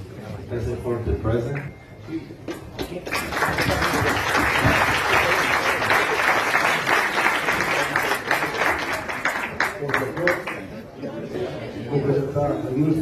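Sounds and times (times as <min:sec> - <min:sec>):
audience applauding: 0:02.9 - 0:10.7.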